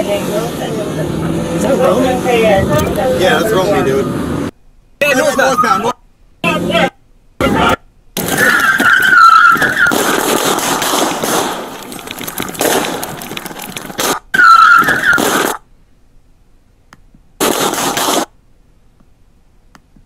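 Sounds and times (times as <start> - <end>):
car tires squealing: 8.2 - 10.4, 14.0 - 15.6
rushing movement noise: 8.2 - 15.6.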